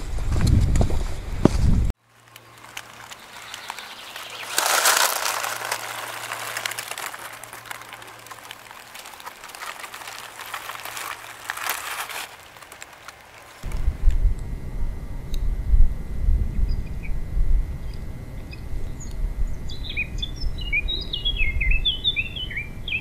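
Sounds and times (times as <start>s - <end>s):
outdoor rustling and crackling: 0.0s - 15.4s.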